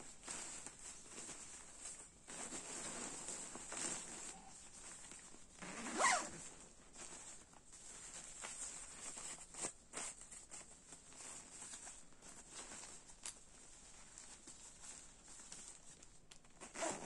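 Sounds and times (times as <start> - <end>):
sleeping bag rustling and crinkling: 0.0 - 17.0
zipper pull: 5.6 - 6.5, 16.6 - 17.0.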